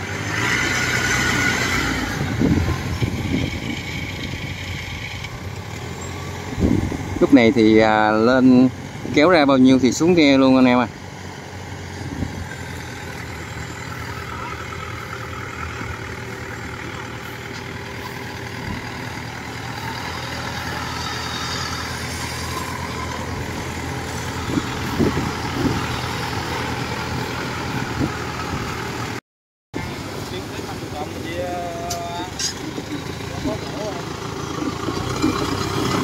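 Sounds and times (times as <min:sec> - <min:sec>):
small engine running: 0:11.9 - 0:29.2.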